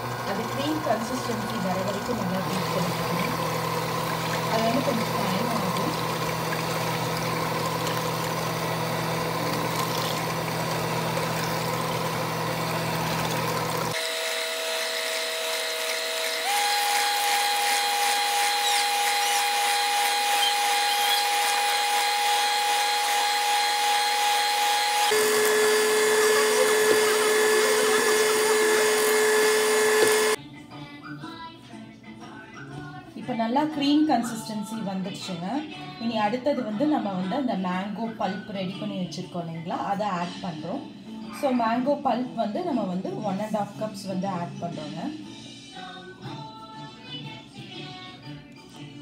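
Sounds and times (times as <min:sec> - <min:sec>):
stand mixer whipping cream: 0:00.0 - 0:30.4.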